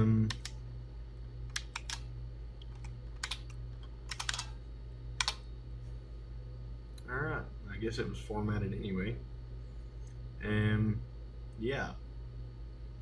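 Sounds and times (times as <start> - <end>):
keyboard keys clicking: 1.5 - 2.0, 2.6 - 4.5.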